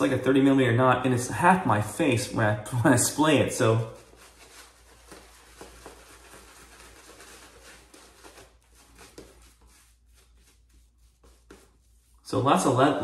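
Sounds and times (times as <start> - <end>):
shaving brush swishing lather: 3.6 - 13.0.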